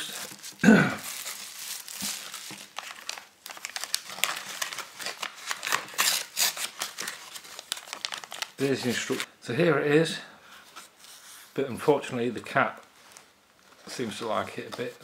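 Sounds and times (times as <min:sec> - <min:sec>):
plastic packaging crinkling: 0:00.0 - 0:09.3.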